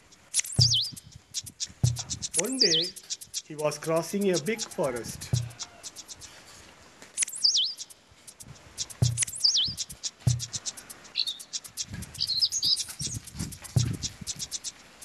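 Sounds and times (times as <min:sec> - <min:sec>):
birds chirping: 0:00.0 - 0:15.0
warbling bird whistles: 0:00.2 - 0:06.4, 0:07.2 - 0:15.0
short low thumps: 0:00.6 - 0:02.5, 0:05.3 - 0:05.6, 0:08.4 - 0:10.6, 0:12.9 - 0:14.4.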